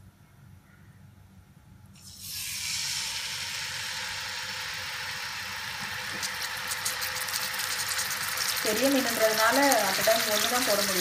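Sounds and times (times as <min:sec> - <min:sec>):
fish sizzling in hot oil: 0:02.0 - 0:11.0
oil crackling pops: 0:05.7 - 0:11.0.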